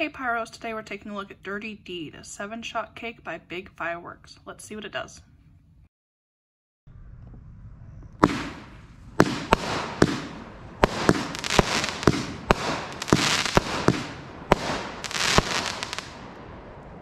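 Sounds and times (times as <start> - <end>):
fireworks banging: 8.0 - 17.0
fireworks hissing: 8.2 - 16.4.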